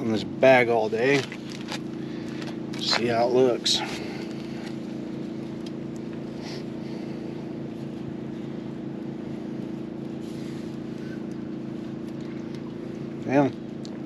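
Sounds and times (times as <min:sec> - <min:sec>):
motor droning: 0:00.0 - 0:14.0.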